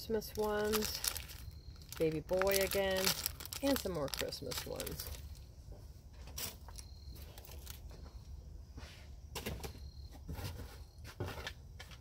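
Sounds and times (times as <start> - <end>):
plastic rustling: 0.0 - 5.6, 6.3 - 8.0.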